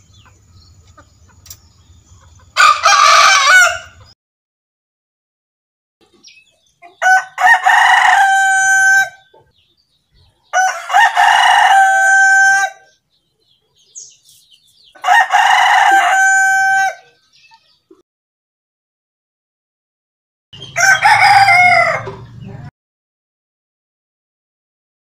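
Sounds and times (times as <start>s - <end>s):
rooster crowing: 2.6s - 4.1s, 7.0s - 9.3s, 10.5s - 13.0s, 15.0s - 17.2s, 20.6s - 22.4s.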